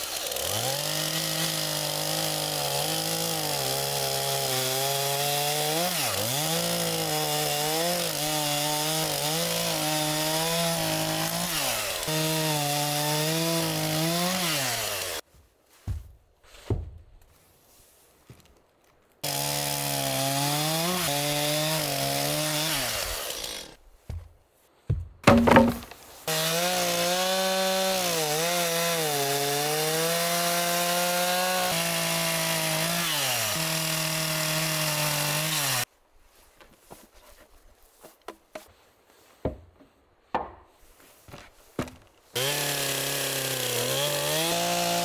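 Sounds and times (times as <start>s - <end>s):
chainsaw cutting log: 0.0s - 15.2s, 19.2s - 24.2s, 25.2s - 35.9s, 41.3s - 45.0s
short knocks: 24.9s - 26.0s.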